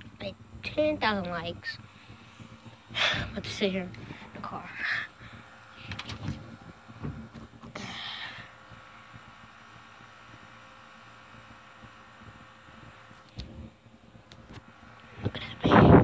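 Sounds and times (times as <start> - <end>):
phone microphone handling noise: 5.2 - 7.8
soft thumps: 5.2 - 7.8.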